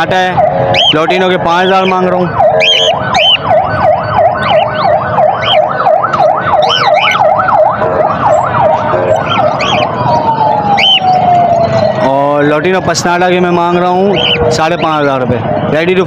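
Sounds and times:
siren yelping: 0:00.0 - 0:16.0
lovebirds chirping: 0:00.8 - 0:01.1, 0:01.8 - 0:03.5, 0:06.6 - 0:07.4, 0:08.4 - 0:10.0, 0:14.1 - 0:14.9.

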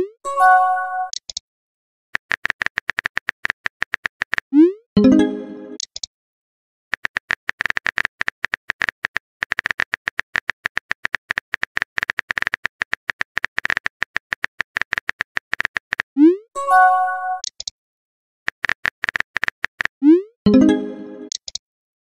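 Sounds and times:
message sent chime: 0:05.0 - 0:05.8, 0:16.6 - 0:17.4, 0:20.5 - 0:21.3.

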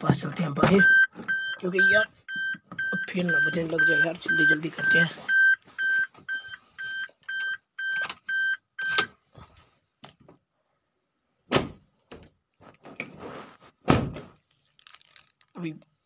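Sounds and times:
car warning beeper: 0:00.6 - 0:09.1.

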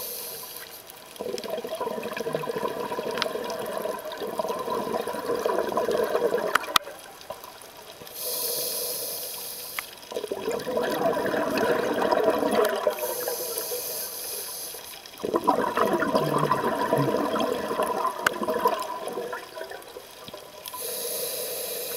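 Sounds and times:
scuba regulator breathing underwater: 0:00.0 - 0:00.8, 0:08.0 - 0:10.0, 0:10.8 - 0:15.6, 0:20.7 - 0:21.9.

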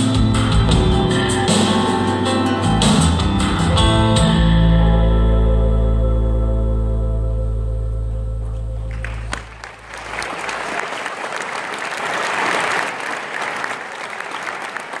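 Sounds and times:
held music chord with bass note: 0:00.0 - 0:09.6
audience applauding: 0:08.9 - 0:15.0.

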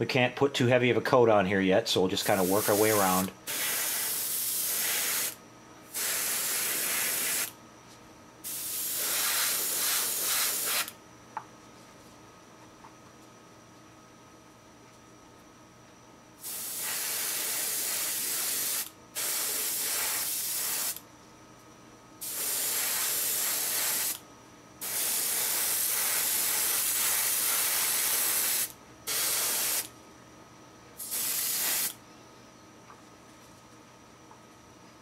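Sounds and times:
airbrush spraying hiss: 0:02.3 - 0:07.5, 0:08.4 - 0:10.9, 0:16.4 - 0:21.0, 0:22.2 - 0:24.2, 0:24.8 - 0:29.9, 0:31.0 - 0:32.0.

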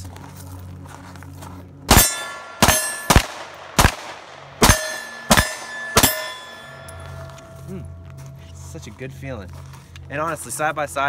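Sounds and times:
pistol shots: 0:01.9 - 0:07.5
steel target ringing: 0:01.9 - 0:07.8.

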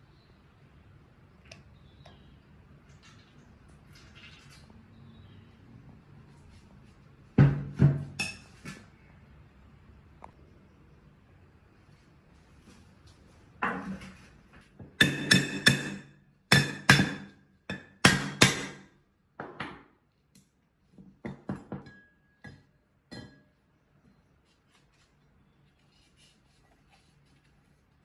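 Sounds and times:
hammer striking metal: 0:15.0 - 0:18.9.

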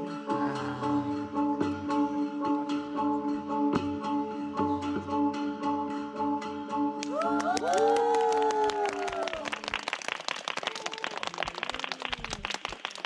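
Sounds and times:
audience clapping and cheering: 0:07.0 - 0:13.0.

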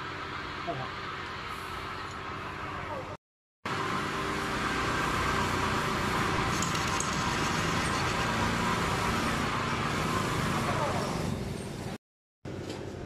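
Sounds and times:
metal lathe cutting steel: 0:03.8 - 0:11.4.

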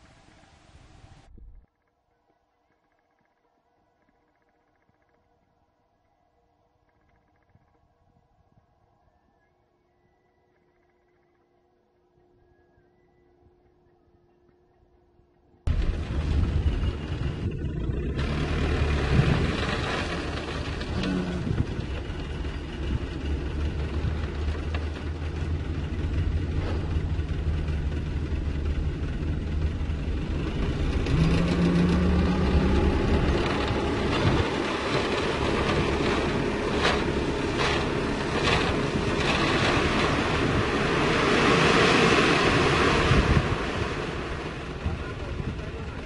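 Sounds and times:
gravel sliding out: 0:15.7 - 0:28.0, 0:29.5 - 0:46.0
diesel truck engine running: 0:15.7 - 0:46.0.

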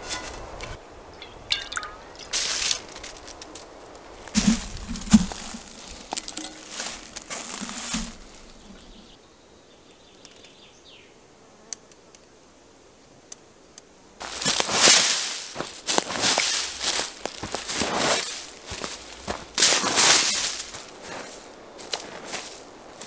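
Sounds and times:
close rustling and knocks: 0:00.0 - 0:09.0, 0:14.2 - 0:22.6
boots crunching on forest floor: 0:01.7 - 0:09.0, 0:14.2 - 0:23.0.

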